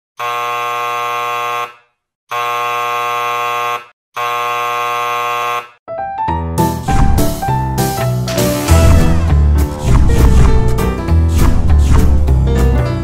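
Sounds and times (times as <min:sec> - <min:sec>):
music: 0:05.9 - 0:13.0.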